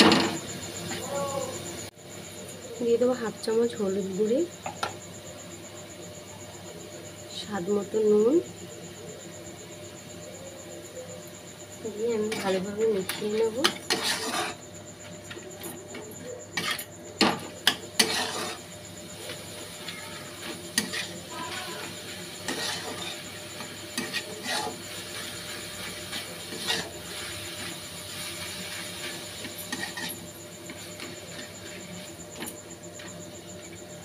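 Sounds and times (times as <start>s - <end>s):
spatula scraping a pan: 12.2s - 14.6s, 15.2s - 33.1s.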